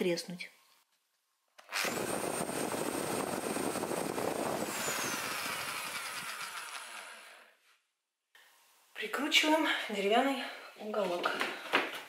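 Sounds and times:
cordless drill whining: 1.6 - 7.5.

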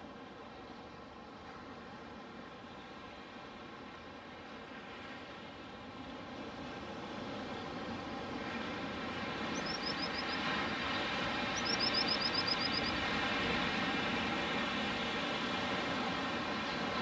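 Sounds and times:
bird chirping: 9.6 - 10.4, 11.6 - 13.0.

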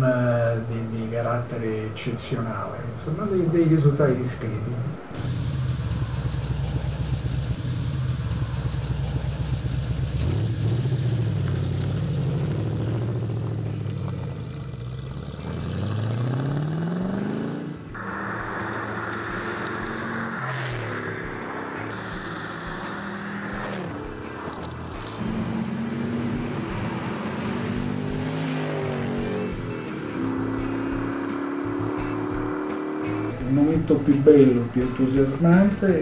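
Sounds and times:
car engine revving: 5.0 - 36.0
car passing by: 13.6 - 36.0.

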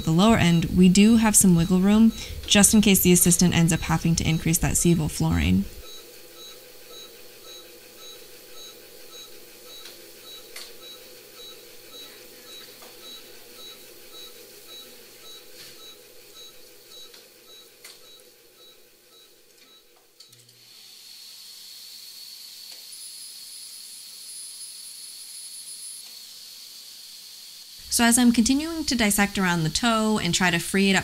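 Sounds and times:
patient monitor beeping: 0.0 - 20.0.

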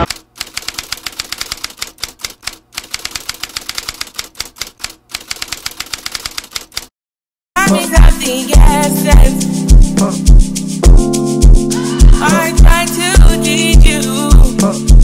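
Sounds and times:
typewriter key clicks: 0.0 - 6.9
music: 7.6 - 15.0.

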